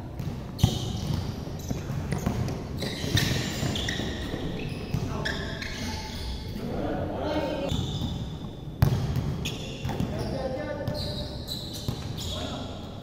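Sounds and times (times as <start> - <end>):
basketball bouncing on court: 0.0 - 5.4, 7.7 - 11.1.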